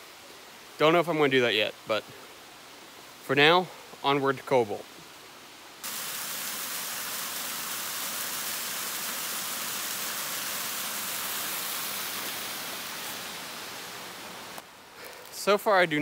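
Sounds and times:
waterfall splashing into pool: 5.8 - 14.6.

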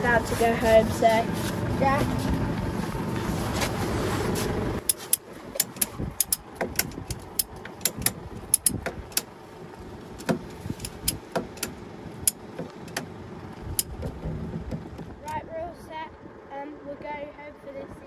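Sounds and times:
ratchet buckle clicking: 4.9 - 9.3.

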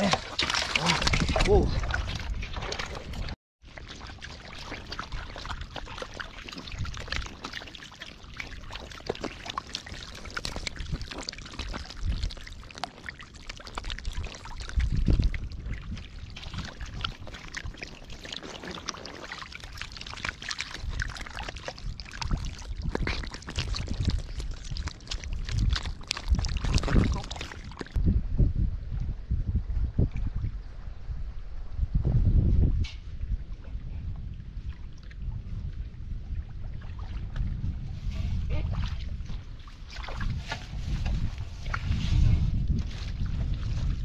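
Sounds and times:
catfish splashing in muddy water: 0.0 - 3.1, 3.7 - 27.9.

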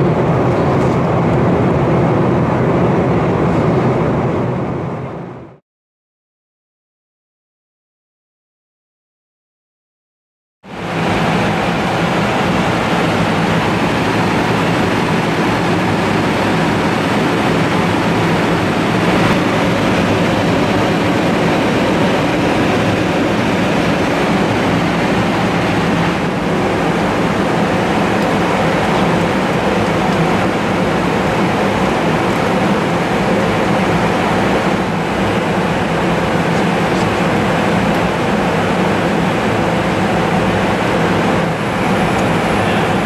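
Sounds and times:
rush of airflow: 0.0 - 5.6, 10.7 - 43.0
low steady hum: 10.7 - 43.0.

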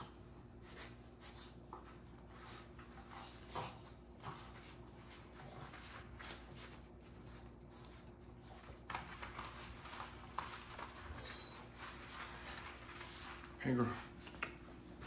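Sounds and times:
puppies scuffling and clicking: 0.0 - 15.0.

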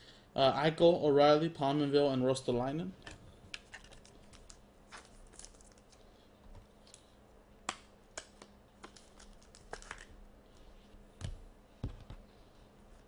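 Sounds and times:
card clicks and rustles: 3.6 - 6.0, 8.2 - 10.1.

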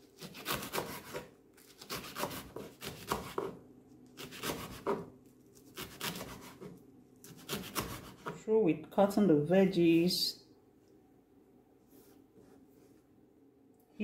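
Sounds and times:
knife slicing on wooden board: 4.2 - 8.4.

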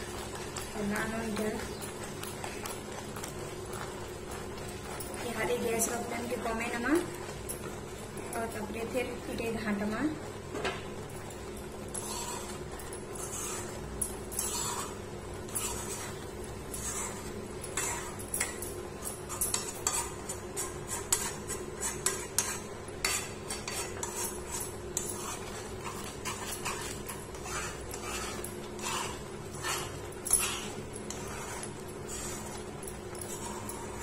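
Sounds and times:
metal spatula scraping a pan: 12.0 - 18.6, 19.3 - 34.0.

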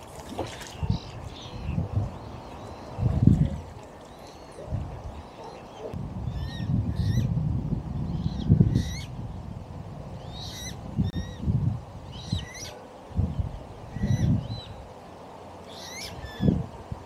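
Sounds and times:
wind buffeting microphone: 0.0 - 14.9, 16.1 - 17.0
birds chirping: 0.5 - 7.3, 10.2 - 14.9, 15.6 - 17.0.

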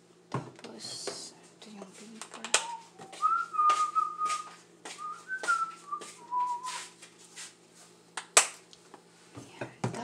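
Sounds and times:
person whistling a tune: 2.6 - 6.9.

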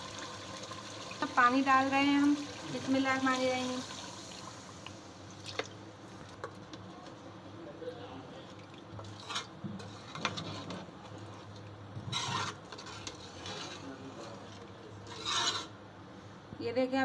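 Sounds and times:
metal spoon scraping a pot: 9.1 - 10.9, 12.0 - 15.8.

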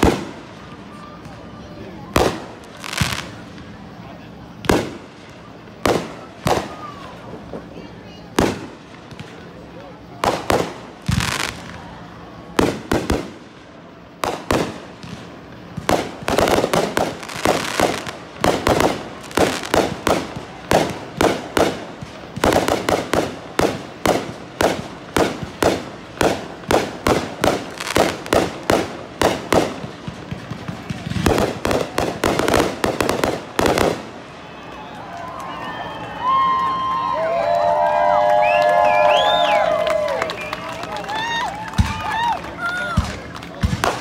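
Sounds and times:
fireworks bangs: 0.0 - 44.0
fireworks crackling: 0.0 - 44.0.

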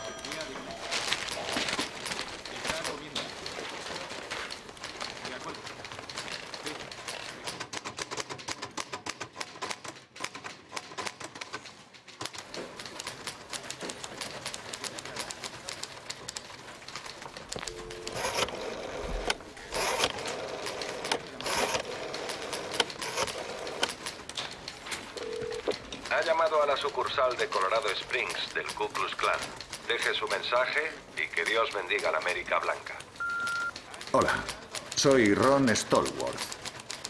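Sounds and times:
rotary dial whirring back: 17.5 - 24.0
dial tone: 17.6 - 18.2, 33.2 - 33.7.

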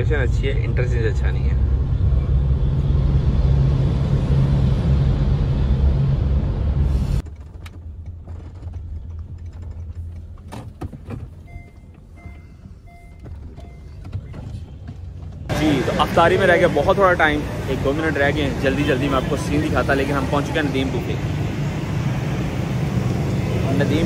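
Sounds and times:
car road and engine rumble: 0.0 - 24.0
parking sensor beeps: 11.4 - 14.8.

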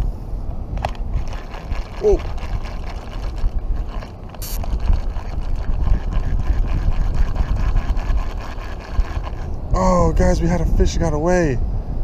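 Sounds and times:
wind buffeting microphone: 0.0 - 12.0
toy fishing reel clicking: 1.2 - 9.5.

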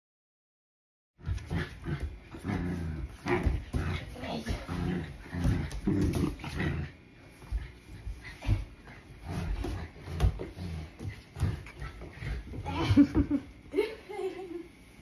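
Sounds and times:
dog growling in play: 1.2 - 7.1, 8.5 - 13.0.

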